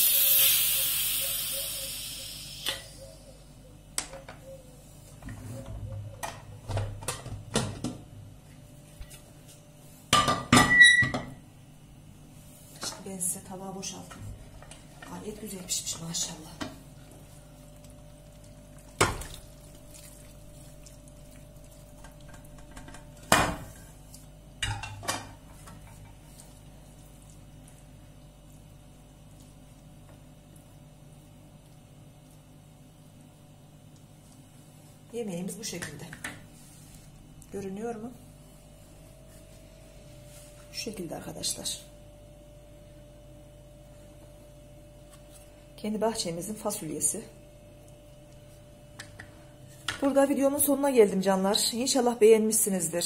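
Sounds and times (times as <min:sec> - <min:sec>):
pressure cooker steam hissing: 0:00.0 - 0:03.0.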